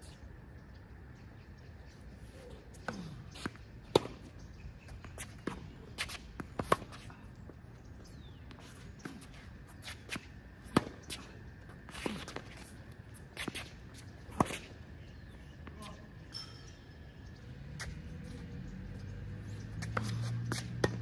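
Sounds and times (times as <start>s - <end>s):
ball bouncing on hard court: 19.8s - 21.0s
rackets striking tennis ball: 19.8s - 21.0s.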